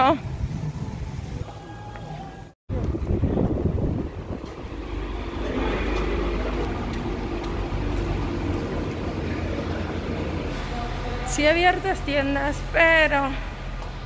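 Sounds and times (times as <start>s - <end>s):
parking garage rumble: 0.0s - 14.0s.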